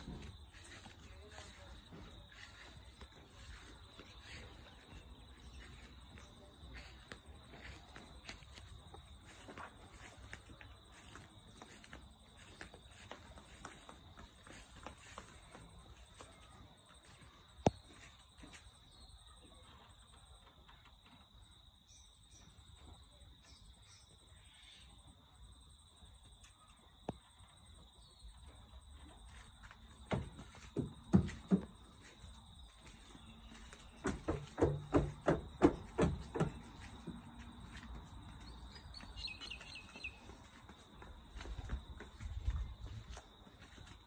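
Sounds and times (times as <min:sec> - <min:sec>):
bird chirp: 0:38.3 - 0:40.6.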